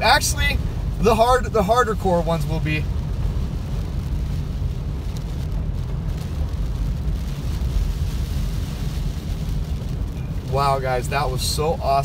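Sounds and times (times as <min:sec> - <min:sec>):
car engine and tyres on wet road: 0:00.0 - 0:12.0.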